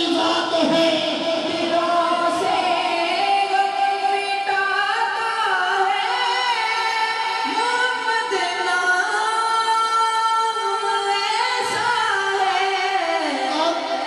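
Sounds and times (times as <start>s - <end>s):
man singing unaccompanied: 0.0s - 2.6s.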